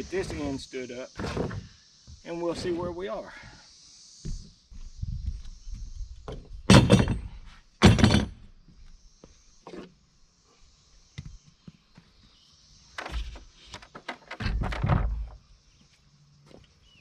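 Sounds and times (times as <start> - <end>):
footsteps on plywood floor: 4.2 - 6.5
wooden wall thunks and knocks: 6.3 - 8.5, 13.0 - 15.4.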